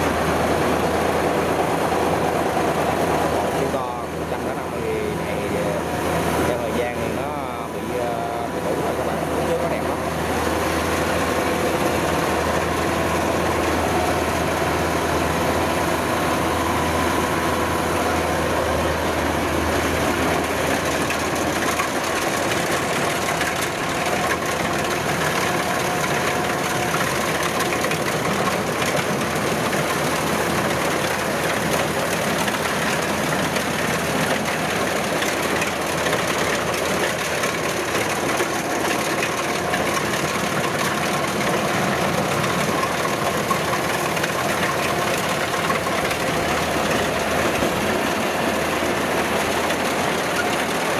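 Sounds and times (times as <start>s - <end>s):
combine harvester diesel drone: 0.0s - 50.9s.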